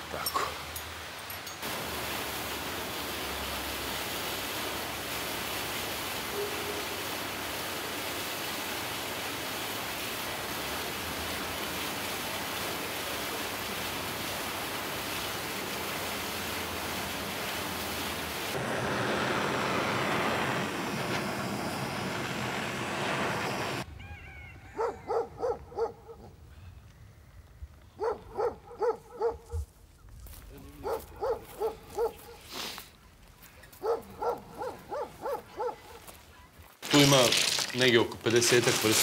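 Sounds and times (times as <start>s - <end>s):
dog barking: 6.3s - 6.9s, 24.8s - 26.3s, 28.0s - 29.6s, 30.8s - 32.4s, 33.8s - 36.1s
rushing street noise: 18.5s - 23.9s.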